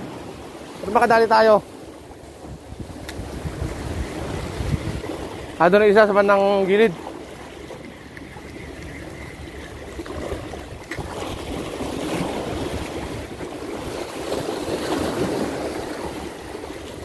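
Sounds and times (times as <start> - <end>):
sea water washing on shore: 0.0 - 17.0
wind buffeting microphone: 1.8 - 17.0.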